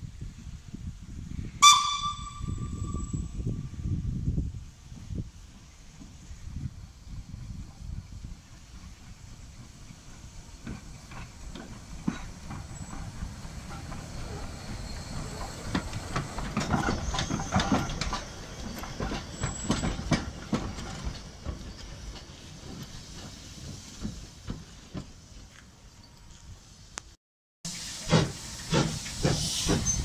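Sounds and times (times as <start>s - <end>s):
steam hissing: 3.7s - 25.5s, 27.7s - 30.0s
train wheels clicking over rail joints: 4.9s - 26.5s, 27.7s - 30.0s.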